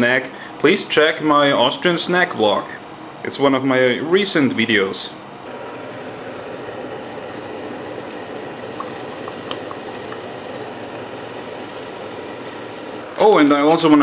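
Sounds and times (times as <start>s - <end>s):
oil bubbling and sizzling in fryer: 5.5s - 13.1s.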